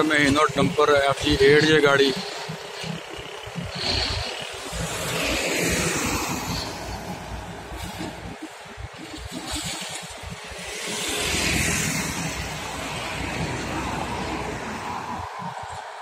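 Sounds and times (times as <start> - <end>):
truck engines passing: 0.0 - 16.0
tyre noise on road: 0.0 - 16.0.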